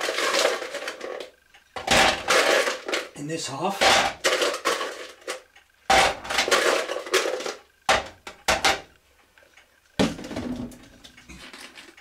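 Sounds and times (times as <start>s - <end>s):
ice cubes clattering in plastic tank: 0.0s - 3.1s, 3.7s - 8.9s.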